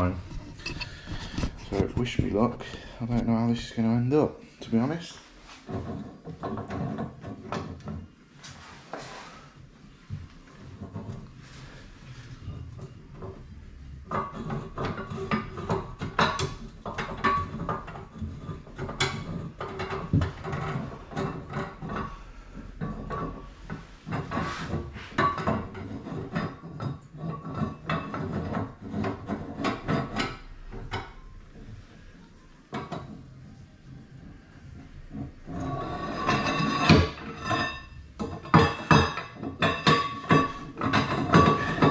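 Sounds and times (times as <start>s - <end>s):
metallic clicking and clunking: 12.5s - 22.2s.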